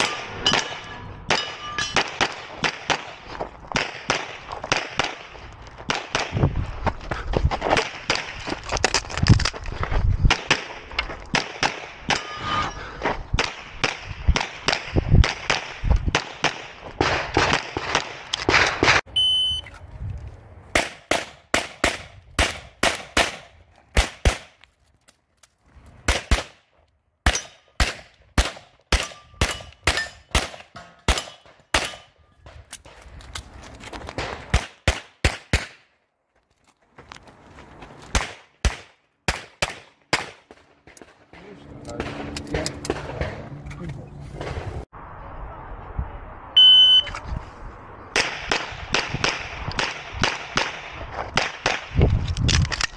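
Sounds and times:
short electronic beep: 19.1s - 19.7s, 46.6s - 47.2s
pistol shots: 20.8s - 24.6s, 26.1s - 26.6s, 27.2s - 32.1s, 34.2s - 35.8s, 38.1s - 41.2s.

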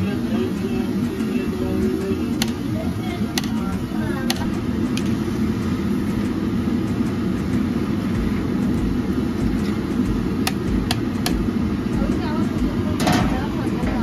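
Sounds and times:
low rumble of frying oil: 0.0s - 14.0s.

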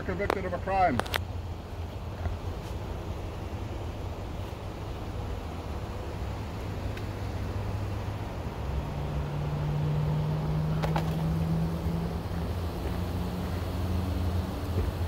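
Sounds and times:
vehicle engine running: 0.0s - 15.0s.

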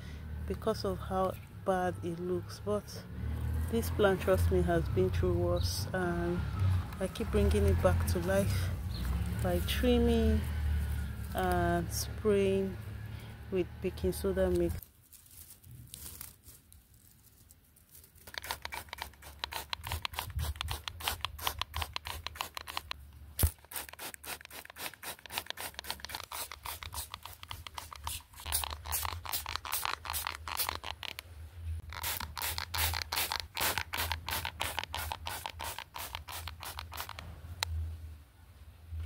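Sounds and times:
spray bottle spritzing: 18.2s - 31.2s, 31.8s - 37.2s.

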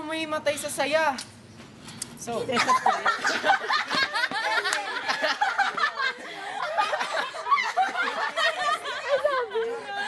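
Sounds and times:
boy and girls laughing: 2.5s - 10.0s.

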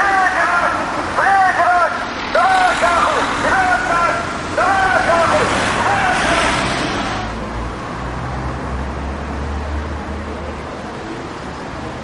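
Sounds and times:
person speaking: 0.0s - 7.3s
street traffic rumble: 0.0s - 12.0s.

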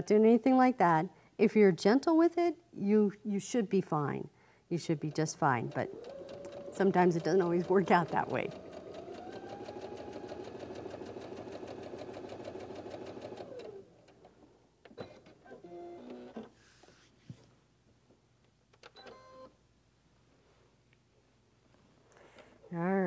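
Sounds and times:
sewing machine stitching: 5.4s - 14.2s.

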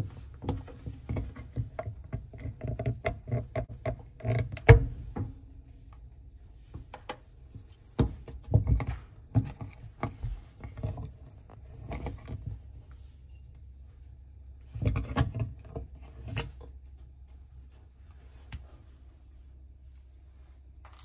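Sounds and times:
plastic parts clicking and knocking: 0.0s - 5.4s, 6.8s - 12.6s, 14.6s - 16.7s.

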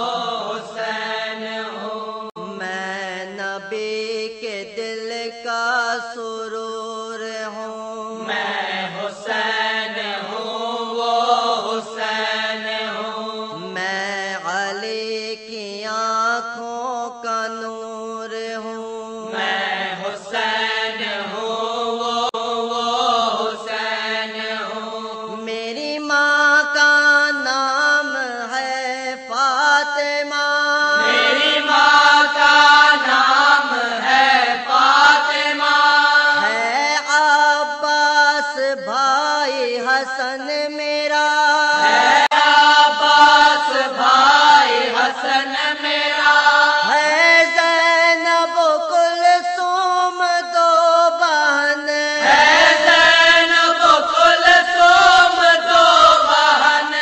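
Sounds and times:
person chanting an elegy: 30.1s - 37.0s, 41.6s - 47.4s, 52.2s - 57.0s.

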